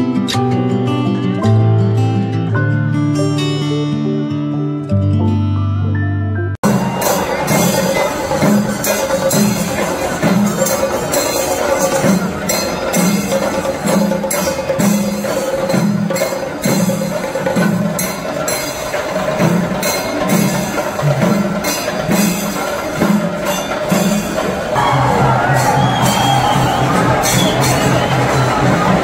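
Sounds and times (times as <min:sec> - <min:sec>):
percussion-led music: 0:06.6 - 0:29.0.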